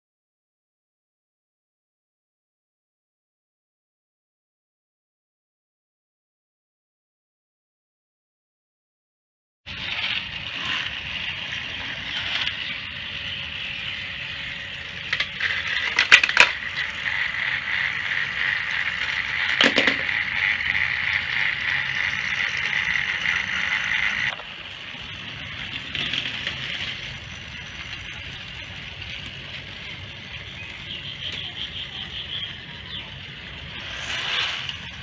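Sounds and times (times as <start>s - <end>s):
toy train motor whine: 9.7s - 35.0s
toy train wheels rattling: 9.7s - 35.0s.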